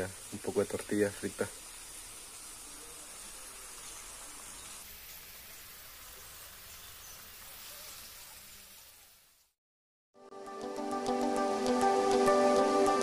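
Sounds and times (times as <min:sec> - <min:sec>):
food sizzling in oil: 0:00.0 - 0:09.6.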